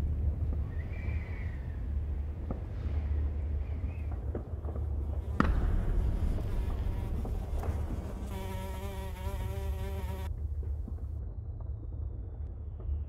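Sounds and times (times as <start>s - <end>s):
low rumble: 0.0s - 8.4s
housefly buzzing: 5.2s - 10.3s.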